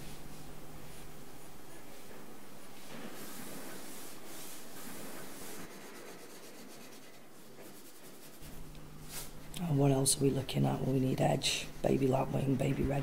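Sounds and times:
pen scratching on paper: 3.2 - 8.7.

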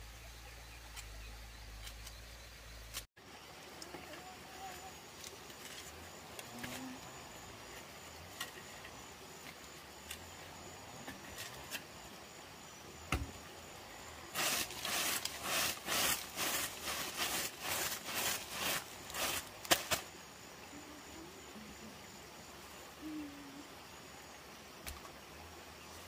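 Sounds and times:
short scraping strokes: 14.3 - 19.5.

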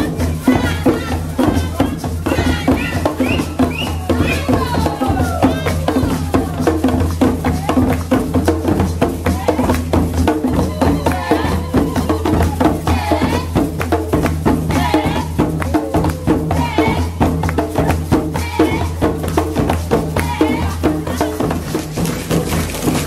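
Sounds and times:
voices singing: 0.0 - 8.4, 9.0 - 22.0
djembe hand drum: 0.0 - 23.0.

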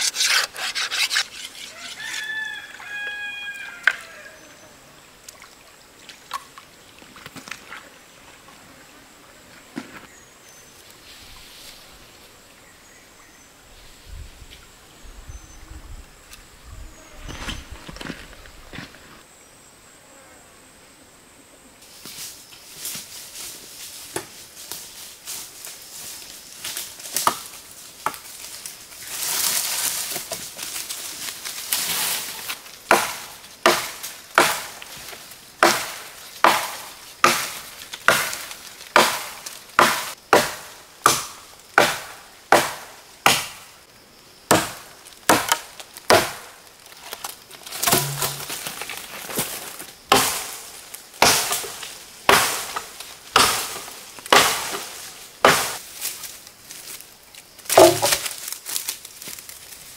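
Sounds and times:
blade chopping: 0.0 - 2.0, 47.8 - 48.6, 51.2 - 54.9
rustling: 0.0 - 2.4.

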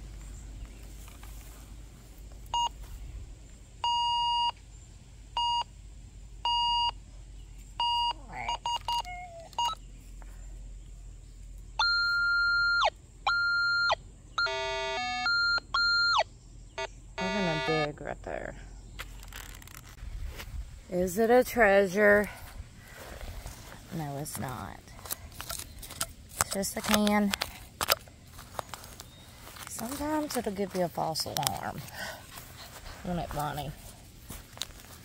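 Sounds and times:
metal detector beeps: 2.5 - 2.8, 3.8 - 4.6, 5.4 - 5.7, 6.4 - 7.0, 7.8 - 9.8, 11.8 - 17.9.

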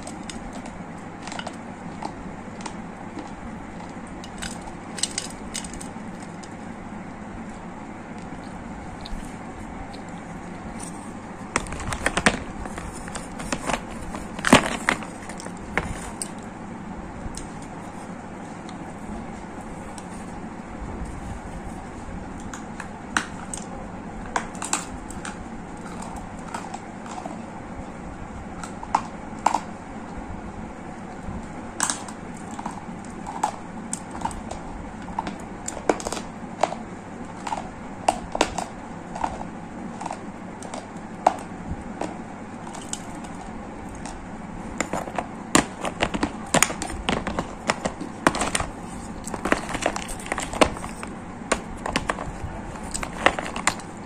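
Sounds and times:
dry clay crunching and cracking: 37.4 - 54.0.

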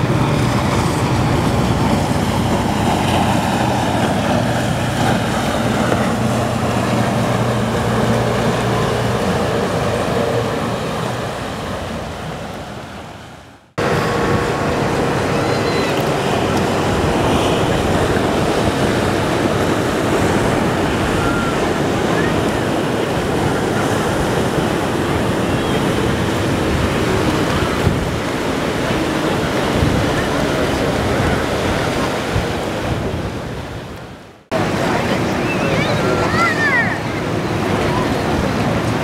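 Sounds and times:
waves breaking: 0.0 - 39.0
wind buffeting microphone: 0.0 - 39.0.

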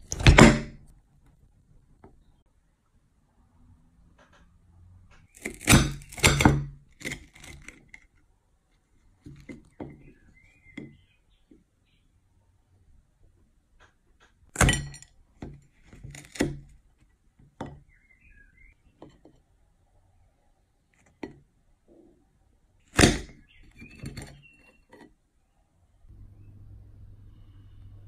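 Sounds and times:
knife cracking chocolate coating: 5.3 - 8.1.

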